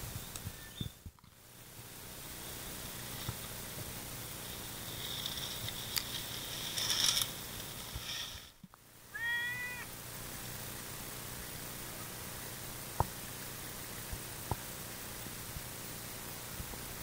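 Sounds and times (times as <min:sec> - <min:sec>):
high hiss: 0:00.0 - 0:17.0
cat meowing: 0:09.1 - 0:09.9.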